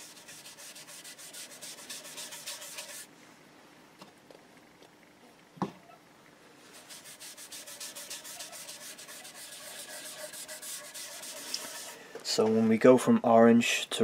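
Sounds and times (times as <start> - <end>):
cloth pad rubbing wood: 0.0 - 3.1, 6.7 - 12.0.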